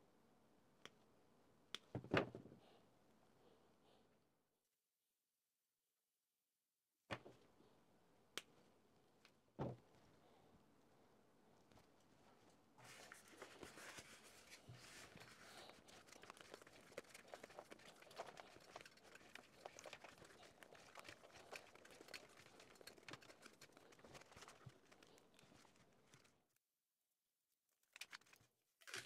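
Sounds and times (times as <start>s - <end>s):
ribbon wire rustling: 12.3s - 26.4s.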